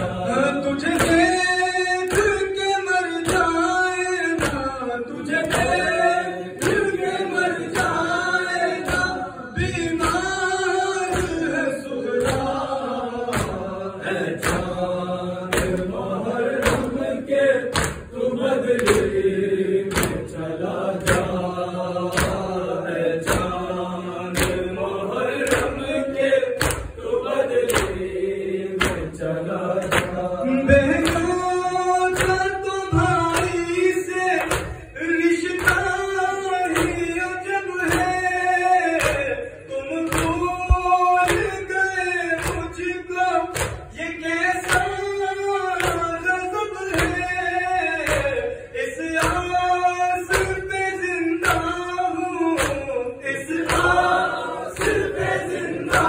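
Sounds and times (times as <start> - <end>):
men chanting a lament: 0.0 - 56.0
person reciting into a microphone: 0.0 - 56.0
chest-beating slaps: 0.8 - 1.4, 6.6 - 8.1, 11.1 - 17.1, 17.7 - 19.2, 19.9 - 22.6, 23.2 - 23.6, 24.3 - 25.8, 26.6 - 28.2, 28.8 - 29.1, 29.8 - 31.4, 34.4 - 34.9, 39.0 - 39.4, 40.0 - 41.6, 42.3 - 42.9, 43.5 - 44.0, 48.0 - 48.4, 52.5 - 53.0, 53.6 - 56.0.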